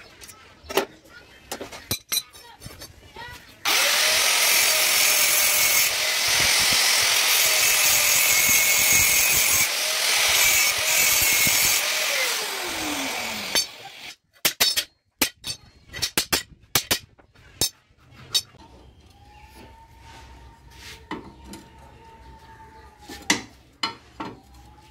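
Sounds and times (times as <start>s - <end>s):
grinder winding down: 3.6s - 14.1s
angle grinder cutting steel: 3.6s - 14.2s.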